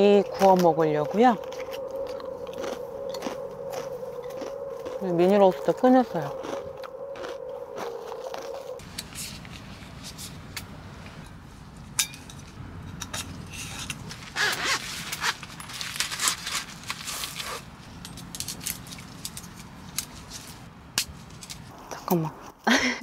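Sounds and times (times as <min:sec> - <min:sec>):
low steady hum: 0:00.0 - 0:23.0
metal grill parts clinking: 0:12.0 - 0:14.0.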